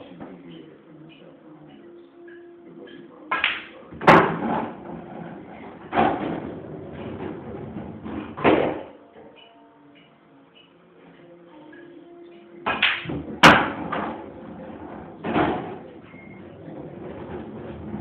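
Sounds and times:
cue and balls knocking: 3.3s - 9.5s, 12.6s - 18.0s
balls rolling rumble: 4.0s - 8.4s, 13.1s - 18.0s.

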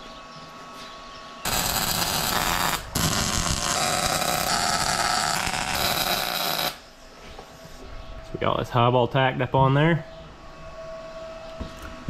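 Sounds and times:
welding arc crackling: 1.4s - 6.9s.

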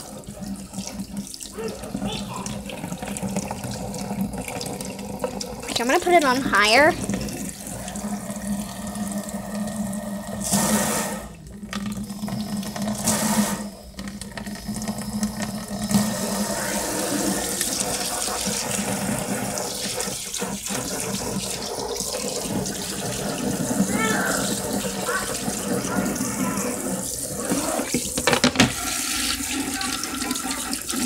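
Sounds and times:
tap running into sink: 11.6s - 16.4s, 24.5s - 31.0s.

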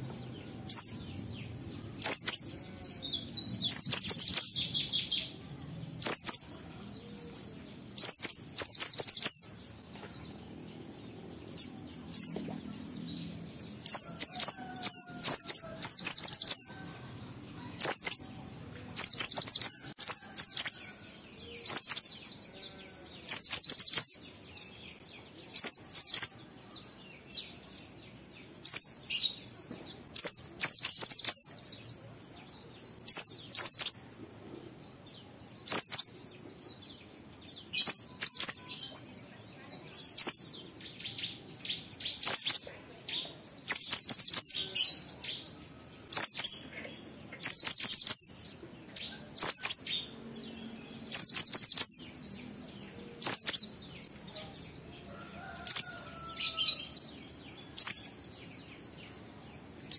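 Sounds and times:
bird rapid high chirping: 0.6s - 5.3s, 6.0s - 6.6s, 7.9s - 9.6s, 11.5s - 13.0s, 13.7s - 16.8s, 17.8s - 20.8s, 21.6s - 22.1s, 23.2s - 24.2s, 25.5s - 26.4s, 30.1s - 31.6s, 33.0s - 34.1s, 35.6s - 36.2s, 37.7s - 38.7s, 40.1s - 40.5s, 41.9s - 42.7s, 43.6s - 44.8s, 46.1s - 46.7s, 47.4s - 48.4s, 49.3s - 49.9s, 51.1s - 52.2s, 53.2s - 54.5s, 57.6s - 58.2s.

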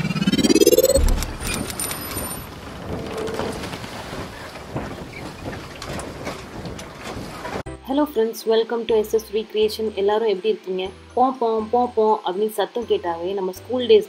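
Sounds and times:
low boom: 0.0s - 1.8s
rising swoosh: 0.0s - 2.4s.

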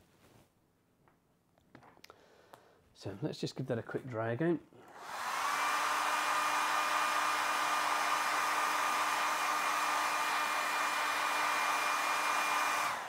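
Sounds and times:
hairdryer running: 4.8s - 13.0s.

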